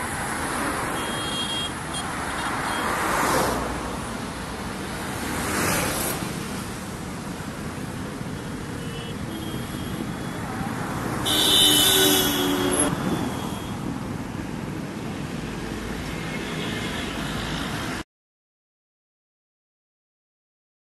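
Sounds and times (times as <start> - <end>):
road traffic roar: 0.0 - 18.1.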